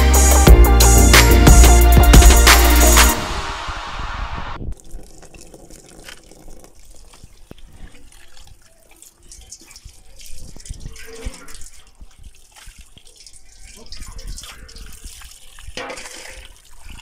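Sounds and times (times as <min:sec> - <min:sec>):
water splashing and dripping: 0:04.6 - 0:17.0.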